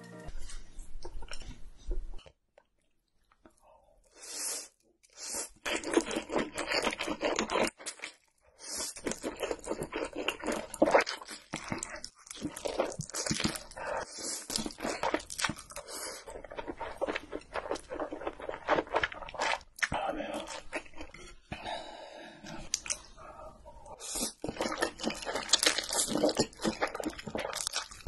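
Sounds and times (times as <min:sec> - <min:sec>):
wet chewing: 0:05.5 - 0:21.2, 0:22.5 - 0:23.1, 0:24.2 - 0:28.0
slurping noodles: 0:24.0 - 0:28.0.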